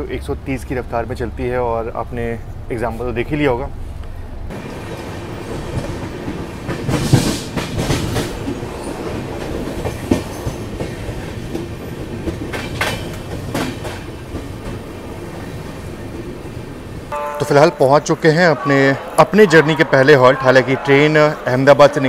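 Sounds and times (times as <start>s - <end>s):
train wheels rumbling on rail: 3.2s - 17.1s
clacks over rail joints: 5.6s - 14.8s.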